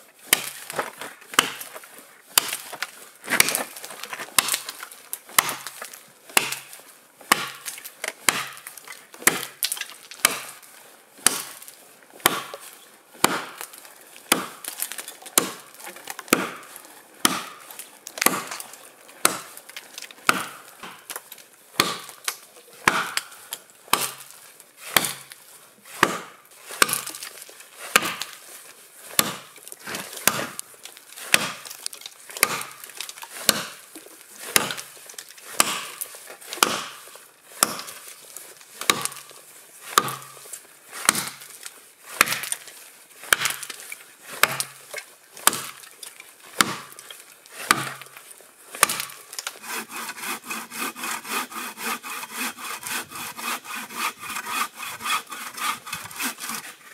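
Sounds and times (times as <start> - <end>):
axe chopping a log: 0.3 - 1.7, 2.4 - 10.6, 11.2 - 11.6, 12.2 - 12.6, 13.2 - 18.6, 19.2 - 19.6, 20.2 - 21.1, 21.8 - 24.3, 24.9 - 27.3, 27.9 - 28.4, 29.1 - 30.6, 31.2 - 38.0, 38.8 - 39.3, 39.9 - 40.4, 41.0 - 41.5, 42.1 - 42.6, 43.3 - 45.9, 46.5 - 48.2, 48.8 - 56.8.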